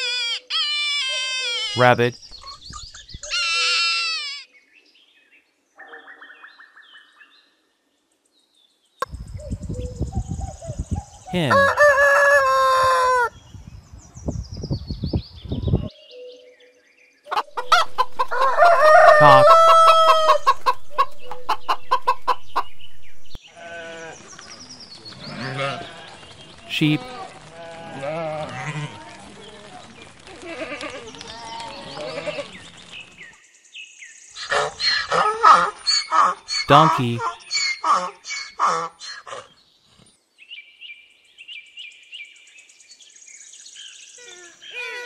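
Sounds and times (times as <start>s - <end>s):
chickens calling: 11.0s - 13.4s, 17.3s - 23.4s, 34.4s - 39.5s
chickens clucking: 17.3s - 23.4s
sheep bleating: 27.0s - 29.3s, 30.4s - 32.6s.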